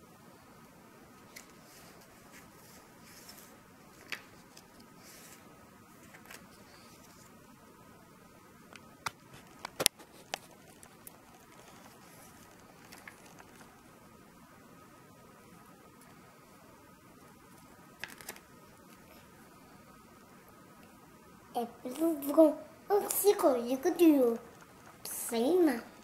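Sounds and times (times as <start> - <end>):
faint steady hum: 0.0 - 26.0
paper pages rustling: 1.3 - 7.3, 9.1 - 13.8, 17.4 - 19.0.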